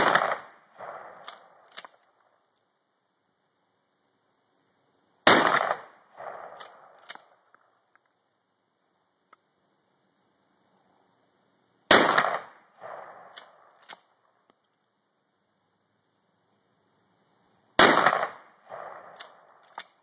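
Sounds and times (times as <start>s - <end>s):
shotgun blasts: 0.0s - 2.0s, 5.2s - 7.3s, 11.9s - 14.0s, 17.8s - 19.6s.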